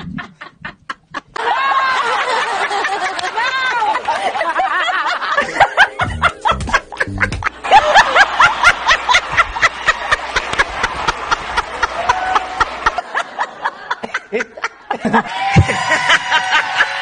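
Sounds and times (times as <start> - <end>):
woman laughing loudly: 0.0 - 10.1
background music: 5.4 - 10.4.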